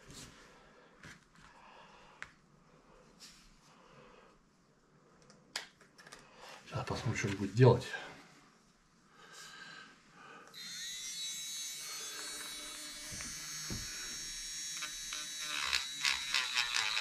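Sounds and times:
rotary tool whining: 0:10.5 - 0:17.0
sanding bit scraping: 0:10.8 - 0:17.0.

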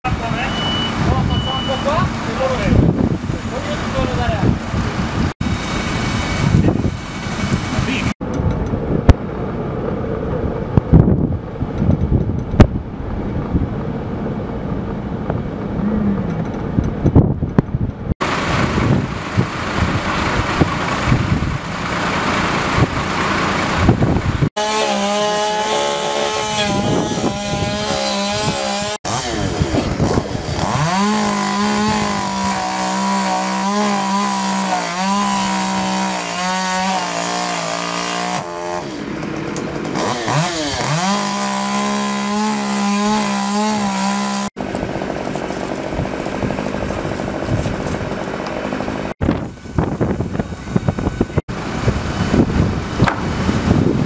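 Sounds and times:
rough outdoor noise: 0:00.0 - 0:54.0
chainsaw revving: 0:18.2 - 0:49.2.

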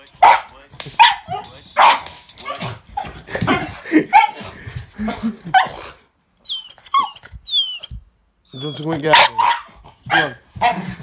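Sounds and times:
small dog barking: 0:00.2 - 0:02.6, 0:09.1 - 0:10.8
dog whining: 0:06.4 - 0:09.7.

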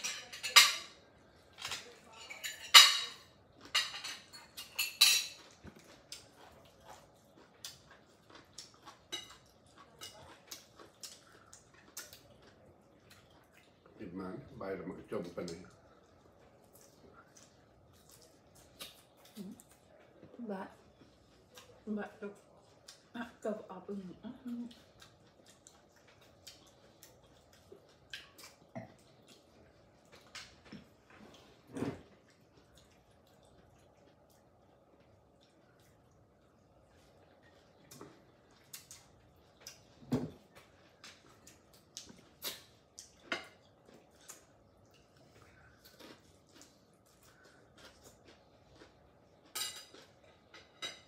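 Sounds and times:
chewing and lip smacks: 0:05.4 - 0:14.0, 0:15.2 - 0:21.8, 0:24.6 - 0:31.5, 0:32.2 - 0:50.7
mouth sounds of eating: 0:43.9 - 0:50.5.

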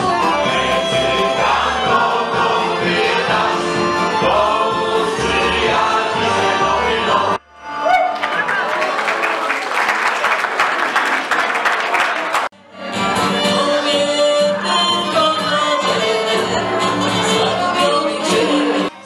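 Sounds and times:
accordion: 0:00.0 - 0:08.0, 0:12.6 - 0:19.0
mixed choir singing: 0:00.3 - 0:07.4, 0:13.2 - 0:18.9
audience applause: 0:07.9 - 0:12.5.

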